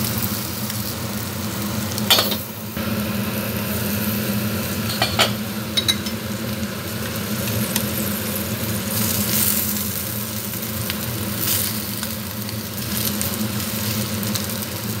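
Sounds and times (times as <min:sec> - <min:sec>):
food sizzling in a frying pan: 0:00.0 - 0:15.0
low mechanical hum: 0:00.0 - 0:15.0.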